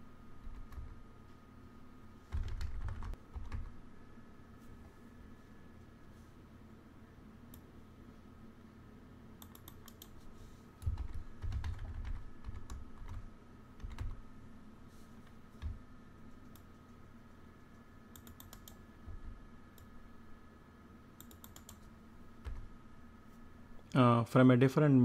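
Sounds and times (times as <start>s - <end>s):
faint electrical hum: 0.0s - 25.0s
keyboard typing: 2.3s - 3.7s, 9.4s - 10.2s, 10.8s - 14.2s, 18.1s - 18.8s, 21.2s - 22.6s.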